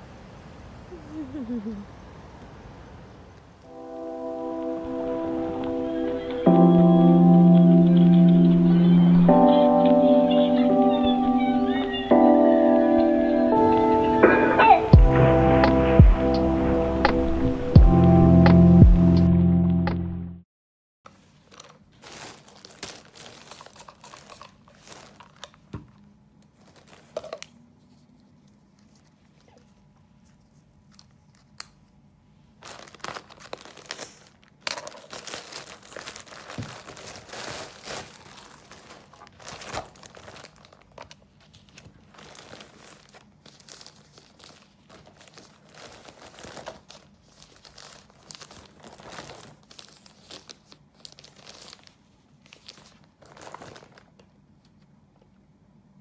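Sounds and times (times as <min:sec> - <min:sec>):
plastic pouch crinkling and tearing: 0:21.2 - 0:25.7, 0:26.5 - 0:27.6, 0:32.5 - 0:54.3.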